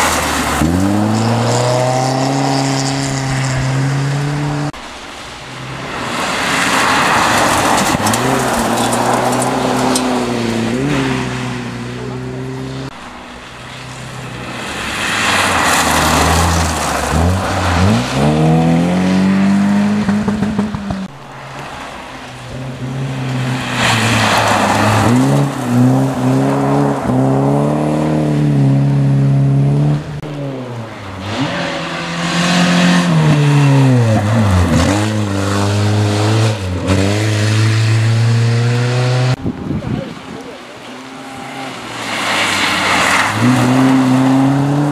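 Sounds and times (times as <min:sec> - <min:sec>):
rally car engine revving: 0:00.0 - 0:04.8, 0:05.6 - 0:44.9
tyres on gravel: 0:00.0 - 0:28.0, 0:39.4 - 0:44.9.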